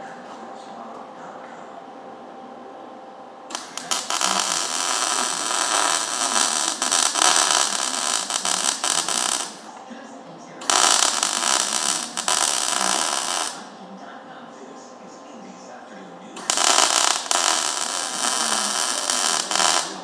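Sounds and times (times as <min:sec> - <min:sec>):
welder arc crackling: 0:03.5 - 0:09.9, 0:10.6 - 0:13.8, 0:16.4 - 0:20.0.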